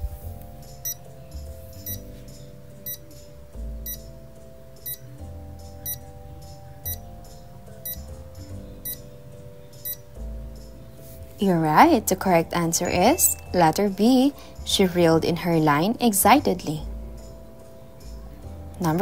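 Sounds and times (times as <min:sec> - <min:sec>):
soft background music: 0:00.0 - 0:19.0
countdown timer ticking: 0:03.8 - 0:04.2, 0:06.9 - 0:07.1.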